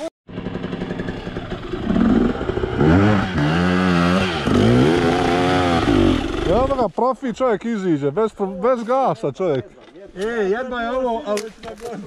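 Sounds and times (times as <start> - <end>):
motorcycle engine revving: 0.3 - 6.8.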